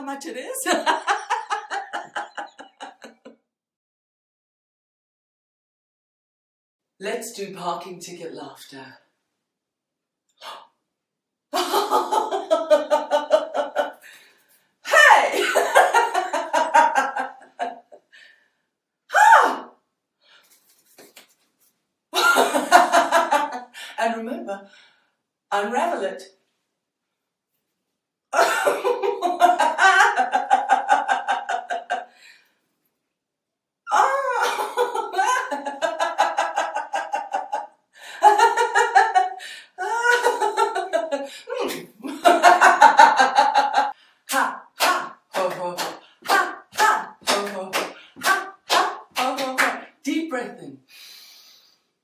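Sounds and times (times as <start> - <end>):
woman laughing: 0.6 - 3.3, 11.6 - 14.0, 14.9 - 18.0, 28.4 - 32.0, 33.9 - 37.6, 38.2 - 43.9.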